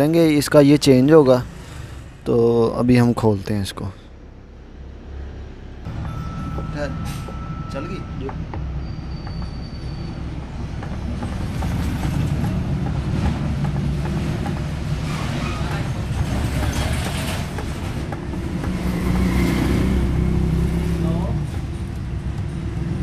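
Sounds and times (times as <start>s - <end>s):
rough gearbox scraping: 8.8s - 19.8s.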